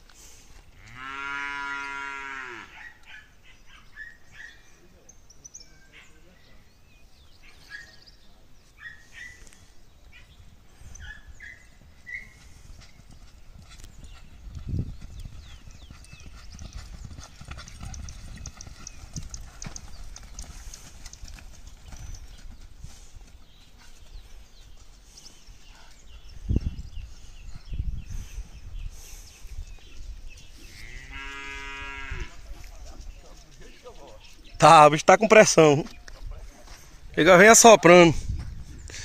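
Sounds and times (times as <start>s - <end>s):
hoofbeats on loose sand: 9.2s - 34.6s, 35.3s - 39.0s.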